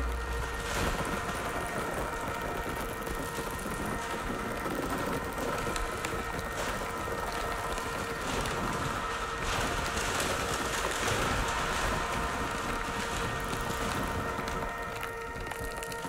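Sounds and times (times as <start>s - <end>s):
drone of held tones: 0.0s - 16.0s
metallic foil crumpling and rustling: 0.0s - 16.0s.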